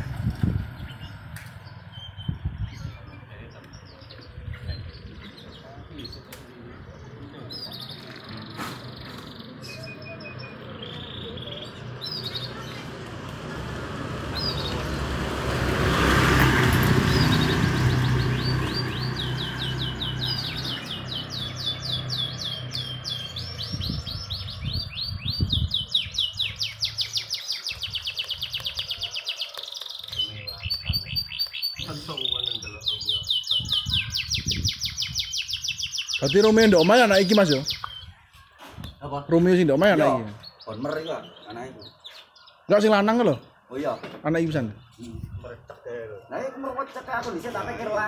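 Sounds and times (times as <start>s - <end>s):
motorcycle passing: 0.0s - 2.6s, 10.4s - 24.9s
canaries chirping: 0.0s - 48.0s
canaries singing fast trills: 0.0s - 48.0s.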